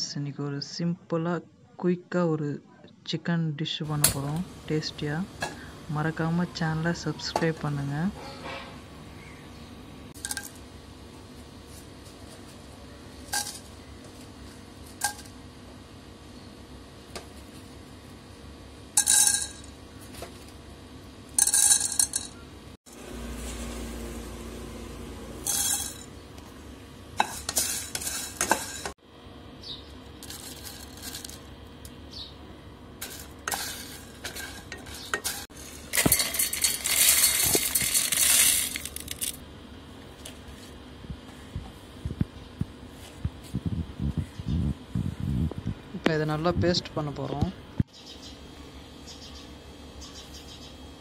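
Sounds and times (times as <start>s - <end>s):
dry spices rattling in a pot: 10.2s - 10.6s, 19.0s - 19.8s, 21.4s - 22.4s, 25.4s - 26.1s, 27.2s - 28.9s, 30.0s - 31.6s, 33.0s - 39.4s.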